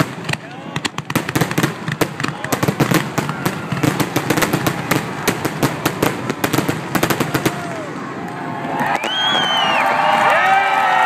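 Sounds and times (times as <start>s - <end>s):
rapid crackling pops: 0.0s - 7.9s
fireworks bursting: 0.0s - 10.2s.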